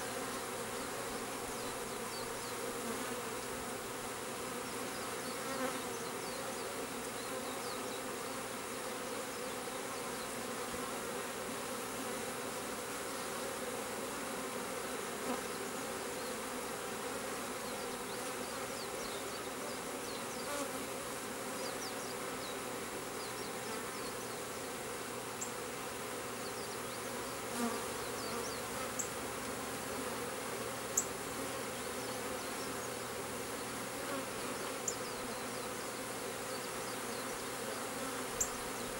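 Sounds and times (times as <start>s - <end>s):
honeybee swarm buzzing: 0.0s - 38.9s.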